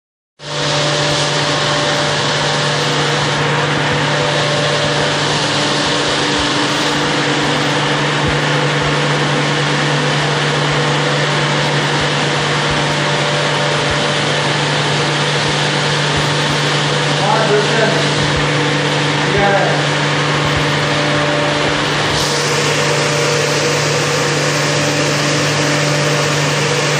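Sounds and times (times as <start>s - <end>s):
machinery low hum: 0.4s - 26.9s.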